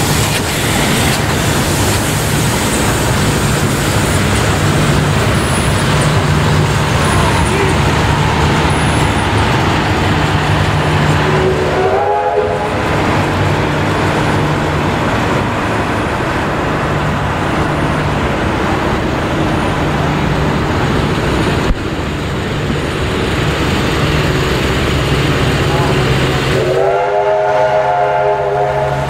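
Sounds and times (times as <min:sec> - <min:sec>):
train carriages rumbling on rails: 0:00.0 - 0:29.0.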